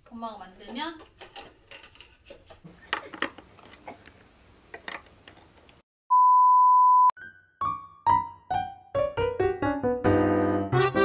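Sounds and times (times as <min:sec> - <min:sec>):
keyboard music: 0:07.2 - 0:11.0.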